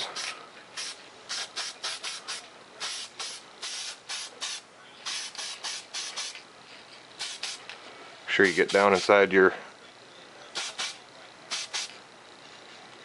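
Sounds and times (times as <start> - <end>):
spray paint can hissing bursts: 0.0 - 6.4, 7.2 - 7.7, 8.4 - 9.2, 10.6 - 12.0.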